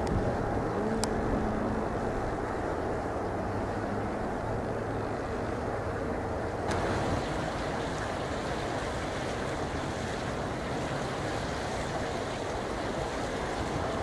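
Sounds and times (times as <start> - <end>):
wind buffeting microphone: 0.0 - 14.0
jet engines roaring: 6.7 - 14.0.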